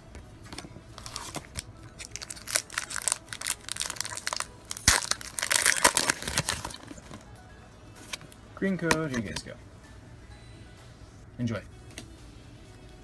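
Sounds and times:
foil wrapper crinkling: 1.0s - 7.2s.

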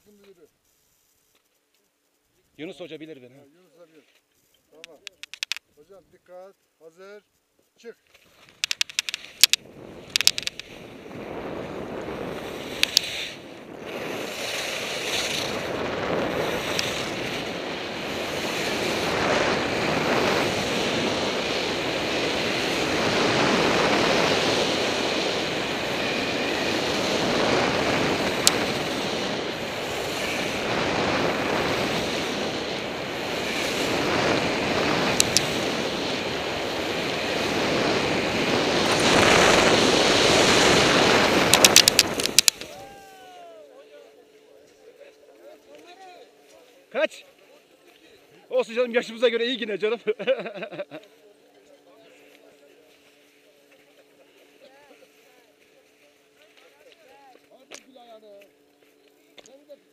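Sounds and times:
sharp ticks: 4.8s - 5.8s, 8.4s - 10.9s, 12.7s - 15.7s, 16.3s - 17.5s, 28.3s - 29.0s, 35.1s - 35.6s, 41.4s - 42.7s
skis hissing on snow: 8.2s - 43.2s
wind on microphone: 8.6s - 42.9s.

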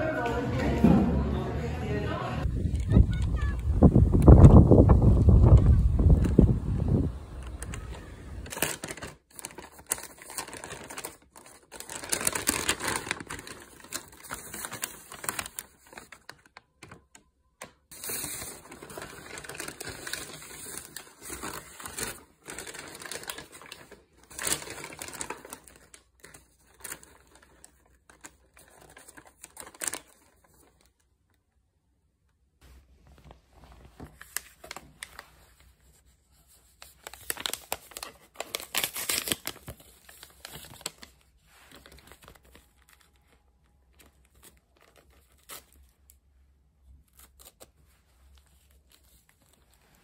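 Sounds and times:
paper bag crinkling: 5.0s - 17.2s, 17.9s - 31.0s, 36.7s - 46.0s.

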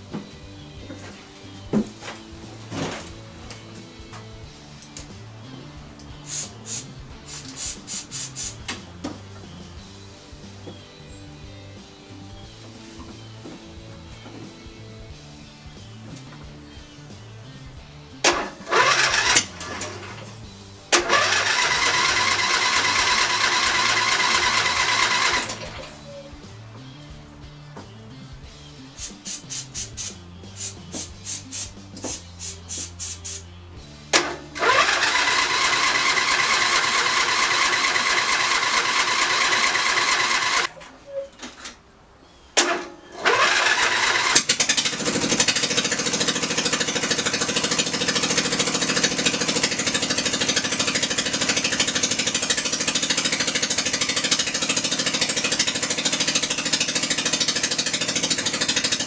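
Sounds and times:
lawn tractor engine cranking and running: 18.3s - 26.0s, 34.1s - 41.8s, 42.6s - 59.0s.

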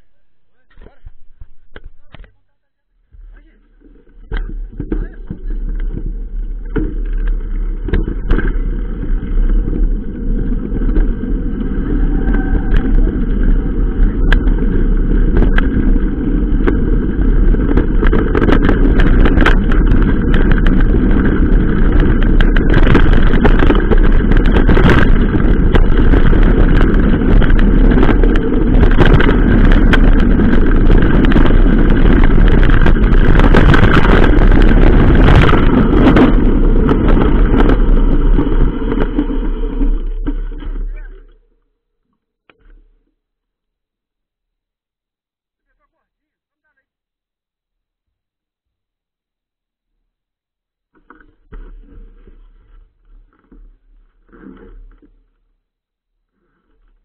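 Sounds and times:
bike rolling over gravel road: 3.2s - 41.7s, 51.0s - 55.5s
wind rushing over microphone: 4.1s - 41.2s.

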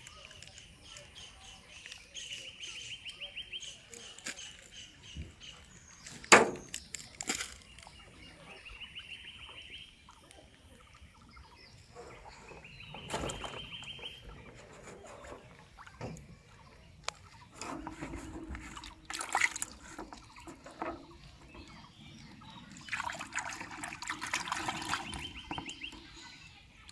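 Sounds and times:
water sloshing and splashing: 5.4s - 26.9s
sharp knocks: 6.3s - 6.6s.

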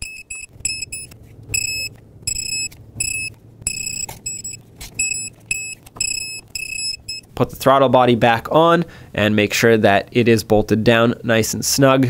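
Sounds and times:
torque wrench beeping: 0.0s - 7.3s.

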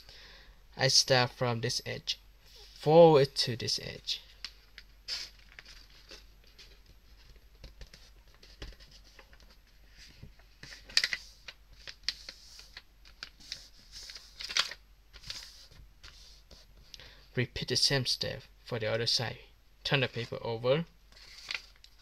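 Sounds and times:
paper rustling and crackling: 4.4s - 16.6s, 21.1s - 22.0s.

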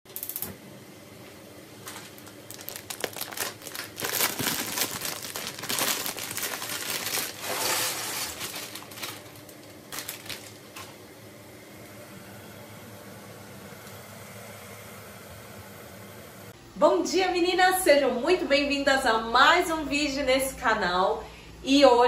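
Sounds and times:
plastic bag crinkling: 1.8s - 11.0s.

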